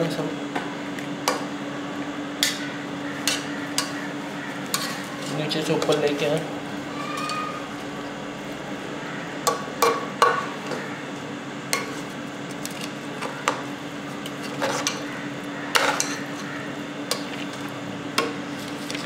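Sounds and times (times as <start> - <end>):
steady low hum: 0.0 - 19.0
metal spoon scraping a pot: 4.6 - 6.2, 15.7 - 16.5.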